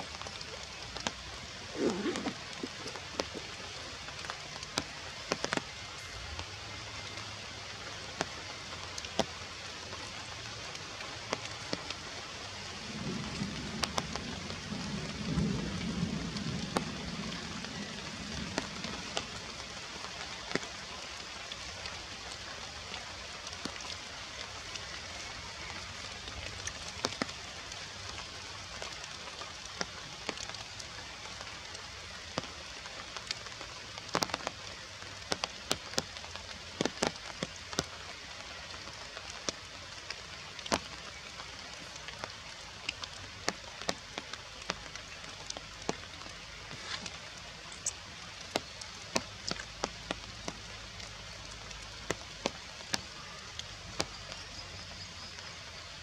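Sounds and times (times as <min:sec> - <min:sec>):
rain on foliage: 0:00.0 - 0:56.0
sharp drips: 0:40.2 - 0:55.9.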